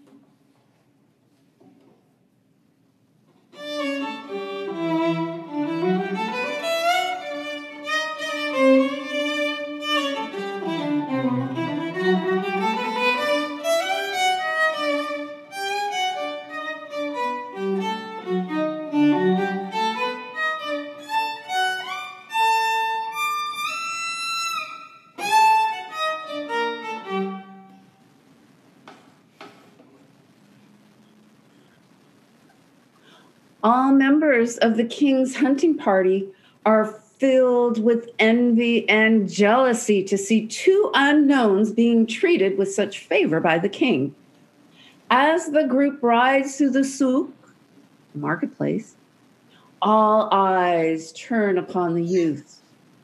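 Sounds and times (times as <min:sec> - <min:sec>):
solo violin melody: 0:03.5 - 0:27.8.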